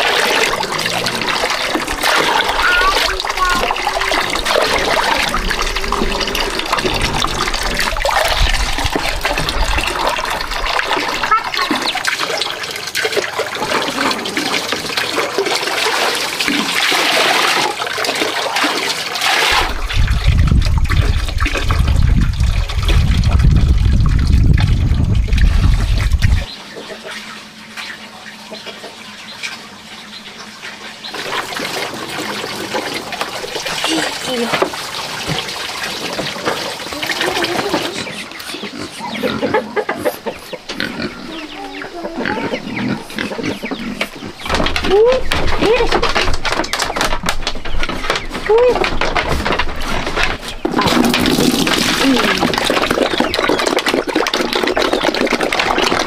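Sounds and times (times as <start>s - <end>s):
water pouring into plastic buckets: 0.0s - 26.5s, 31.0s - 38.7s, 44.2s - 56.0s
deep rumble: 0.4s - 11.3s, 19.6s - 26.5s.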